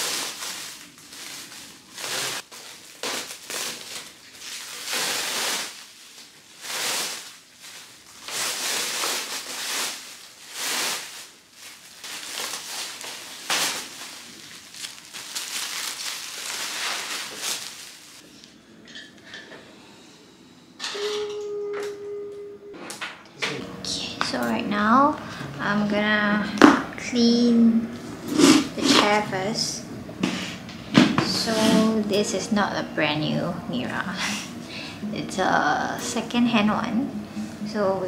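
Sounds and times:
plastic wrap crinkling and rustling: 0.0s - 18.2s.

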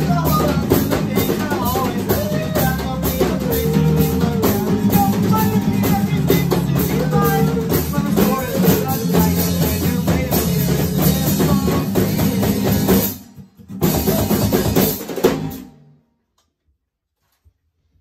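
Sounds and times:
strummed acoustic guitar: 0.0s - 15.9s
bass guitar: 0.0s - 16.1s.

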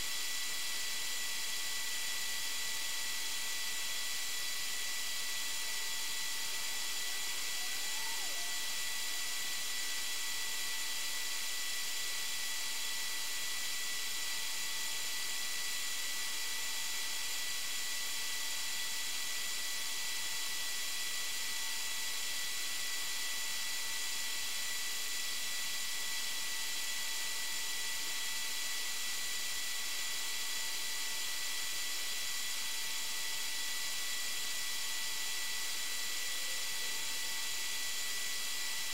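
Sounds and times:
faint high whine: 0.0s - 14.7s, 35.5s - 38.9s.

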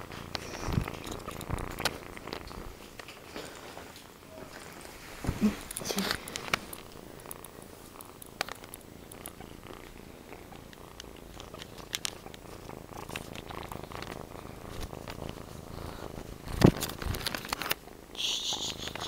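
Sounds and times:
kitten purring: 0.0s - 19.0s
handling clicks and rustles: 0.3s - 9.5s, 10.6s - 15.6s, 16.2s - 17.8s.

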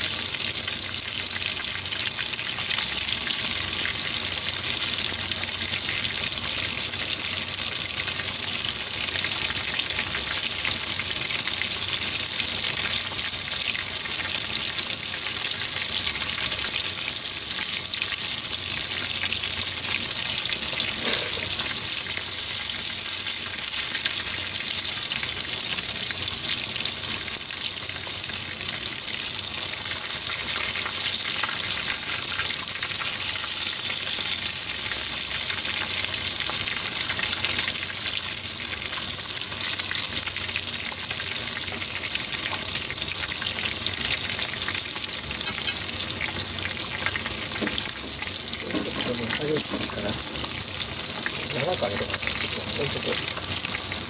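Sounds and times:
fish deep-frying in oil: 0.0s - 54.0s.

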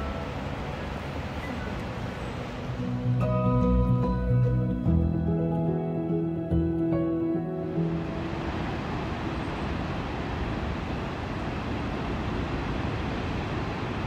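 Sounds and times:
ocean surf against rocks: 0.0s - 3.6s, 6.9s - 14.0s
background music: 2.4s - 8.4s.

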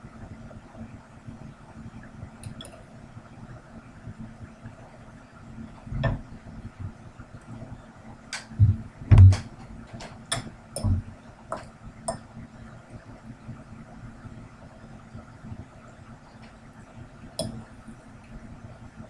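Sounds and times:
dull knocks: 8.6s - 9.6s.

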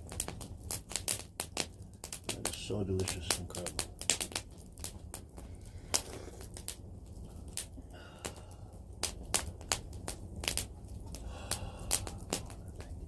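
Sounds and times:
sharp pops: 0.0s - 6.8s
low steady rumble: 0.0s - 13.0s
wood fire crackling: 0.0s - 13.0s.

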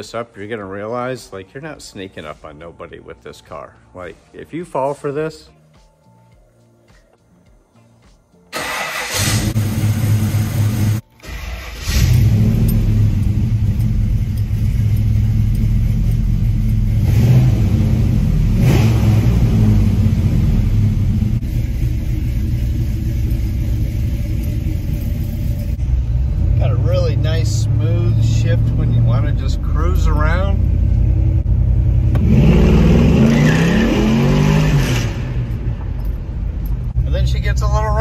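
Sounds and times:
loud engine starting and revving: 8.6s - 35.8s.

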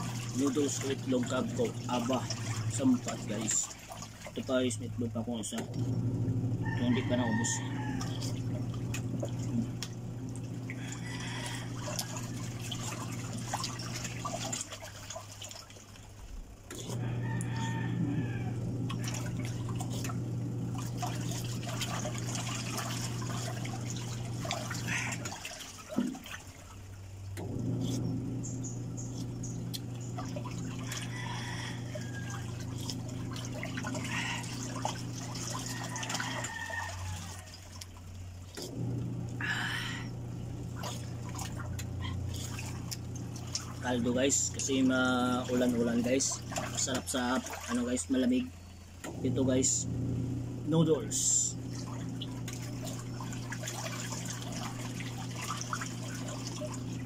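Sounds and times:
steady low hum: 0.0s - 57.0s
slurping soup: 16.7s - 17.1s.

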